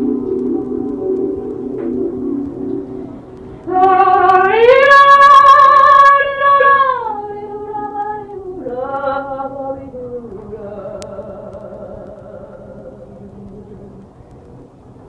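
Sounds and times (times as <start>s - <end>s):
soft ambient music: 0.0s - 15.0s
woman singing sustained notes: 3.6s - 14.0s.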